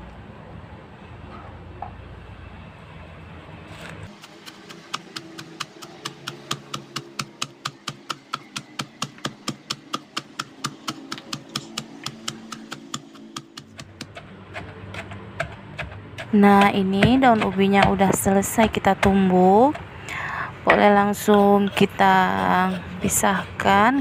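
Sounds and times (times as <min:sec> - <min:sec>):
wooden pestle pounding in mortar: 0:04.1 - 0:20.0.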